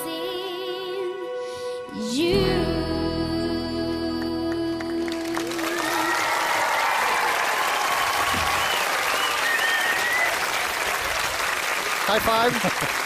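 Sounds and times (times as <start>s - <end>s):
studio audience applause and cheering: 4.3s - 13.0s.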